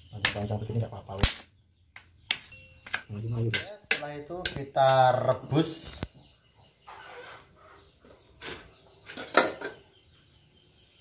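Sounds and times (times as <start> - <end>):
metal pots clanking: 8.4 - 9.8.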